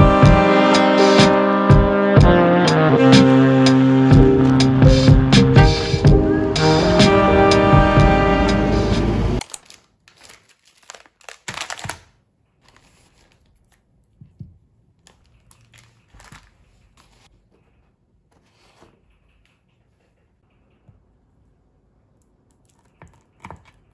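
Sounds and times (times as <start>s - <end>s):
background music: 0.0s - 9.4s
plastic packaging crinkling: 9.4s - 13.9s, 15.0s - 17.3s.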